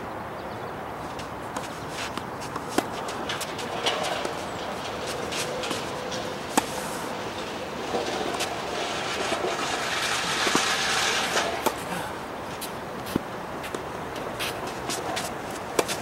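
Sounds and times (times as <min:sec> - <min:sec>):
shoes scuffing on court: 0:01.0 - 0:11.9, 0:12.5 - 0:16.0
racket striking ball: 0:01.1 - 0:11.9, 0:12.6 - 0:16.0
outdoor hiss: 0:08.3 - 0:13.8.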